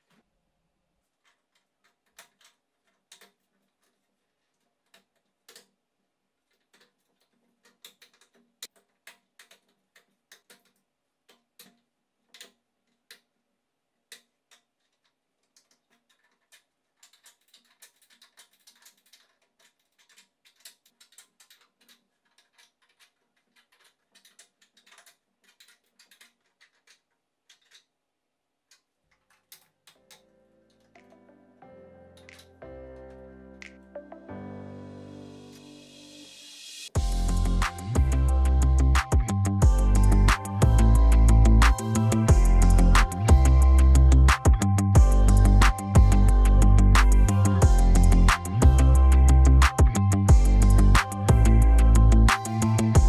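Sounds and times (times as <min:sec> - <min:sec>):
plastic clamps clicking and tapping: 0:06.5 - 0:13.3.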